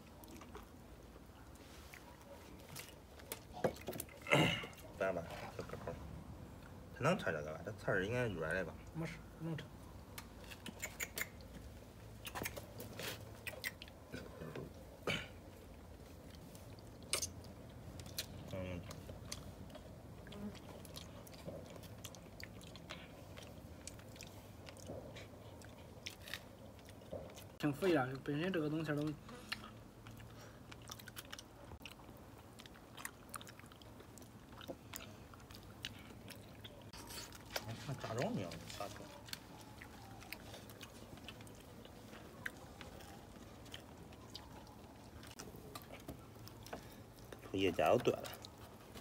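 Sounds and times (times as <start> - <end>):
loud eating smacks: 10.1 - 15.4
chewing and sucking: 10.2 - 14.7, 15.4 - 27.6, 29.0 - 49.0.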